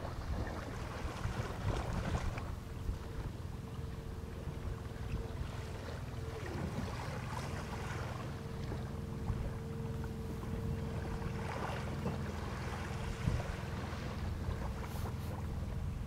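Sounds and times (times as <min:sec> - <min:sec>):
outboard motor idling: 0:00.0 - 0:16.0
wind buffeting microphone: 0:10.3 - 0:16.0.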